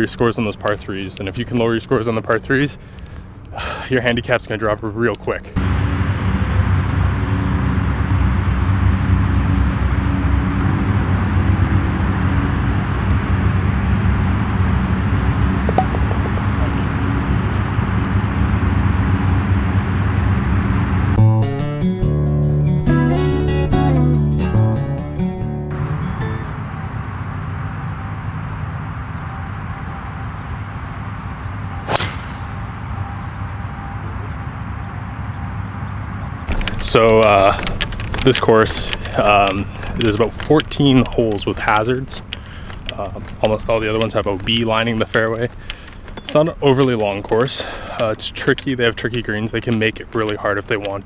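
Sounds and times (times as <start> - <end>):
low engine drone: 4.8 - 23.8, 24.6 - 51.0
low rumble: 5.6 - 21.4, 25.7 - 47.0
golf ball struck by club: 15.6 - 16.8, 31.8 - 33.0.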